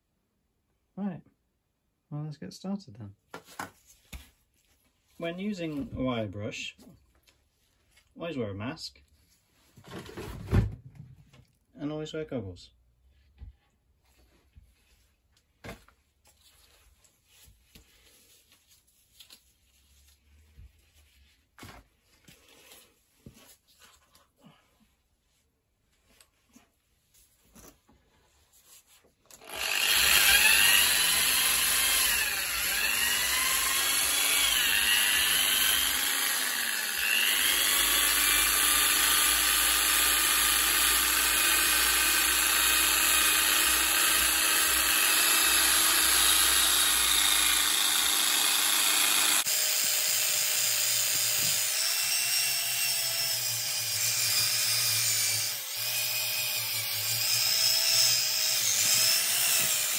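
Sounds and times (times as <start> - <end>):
power drill wire wheel scrubbing metal: 29.4 - 59.9.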